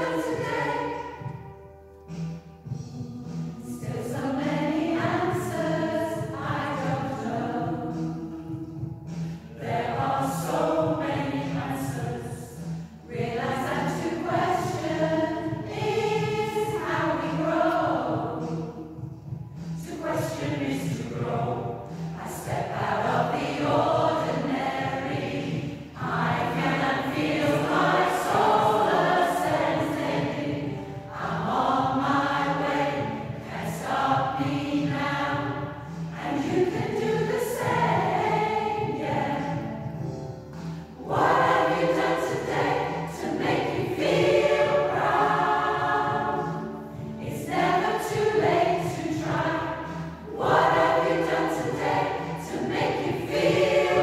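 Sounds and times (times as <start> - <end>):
choir singing: 0.0 - 1.6, 2.6 - 54.0.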